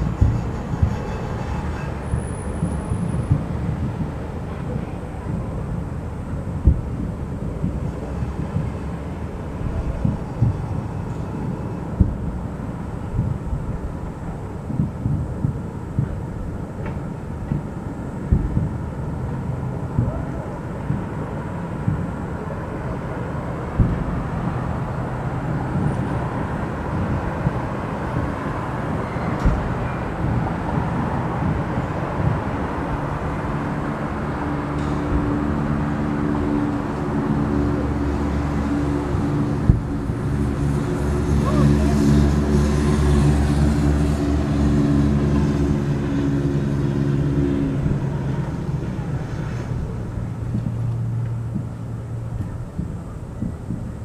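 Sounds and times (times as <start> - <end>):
fireworks bangs: 0.0 - 33.8
distant fireworks rumble: 0.0 - 54.0
low drone: 0.0 - 54.0.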